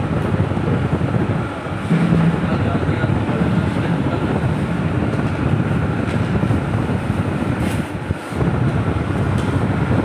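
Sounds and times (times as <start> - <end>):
air cooler fan blowing: 0.0 - 10.0.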